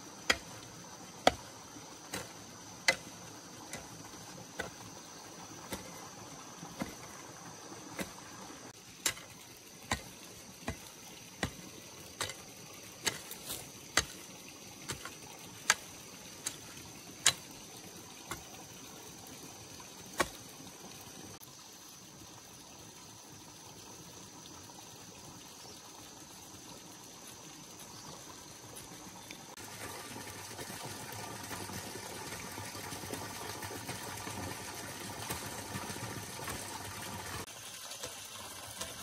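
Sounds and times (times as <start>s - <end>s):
steady hiss: 0.0s - 23.4s.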